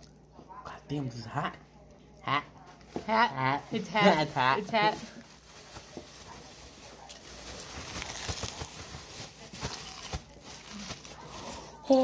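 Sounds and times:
crunchy food being chewed: 5.2s - 11.8s.

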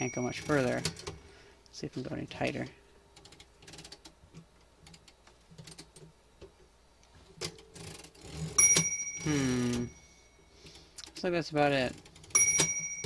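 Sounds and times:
typewriter bell ding: 0.0s - 1.0s, 8.6s - 10.2s, 12.3s - 13.0s.

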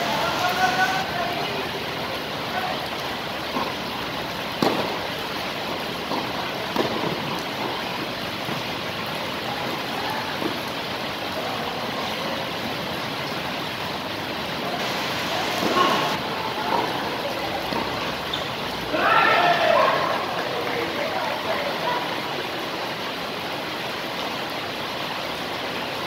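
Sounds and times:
steady hiss: 0.0s - 12.8s, 14.0s - 21.8s
tennis ball hits: 4.6s - 5.1s, 6.0s - 7.8s.

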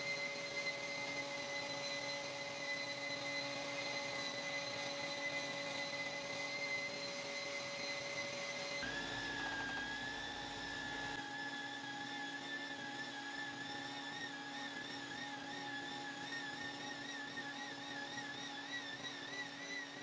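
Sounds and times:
electric sander whining: 0.0s - 12.0s.

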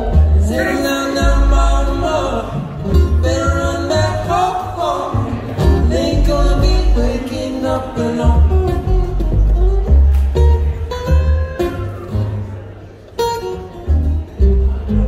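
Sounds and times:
man singing: 0.0s - 9.3s
acoustic guitars strumming: 0.0s - 15.0s
plucked upright bass: 0.0s - 15.0s.

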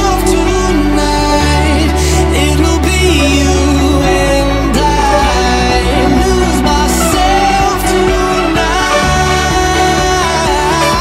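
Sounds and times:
song with bass and melody: 0.0s - 11.0s.

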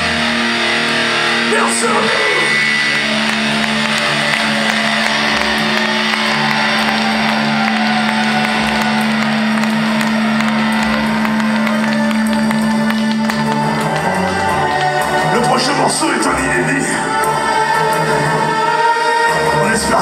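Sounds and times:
low amplified note: 0.0s - 14.7s
pulsing hum: 0.0s - 15.7s
crowd cheering and clapping: 0.0s - 18.7s.

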